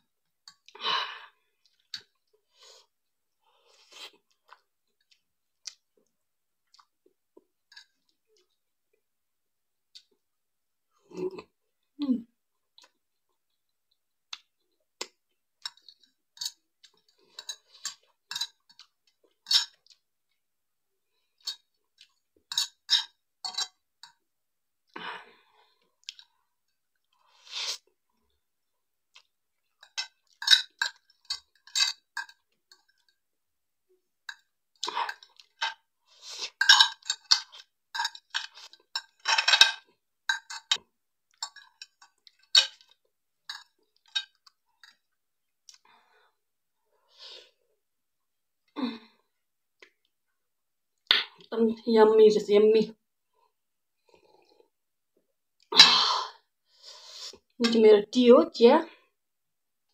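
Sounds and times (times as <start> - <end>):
wet chewing and smacking: 36.5 - 45.9.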